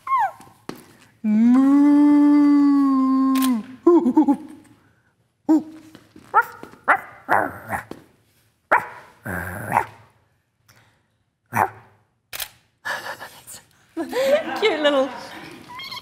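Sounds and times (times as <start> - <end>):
person making bark-like yips: 0.0 - 0.6.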